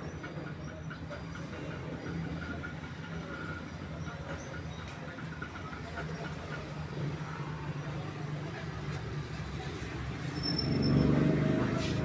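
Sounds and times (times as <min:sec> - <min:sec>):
low engine rumble: 0:00.0 - 0:12.0.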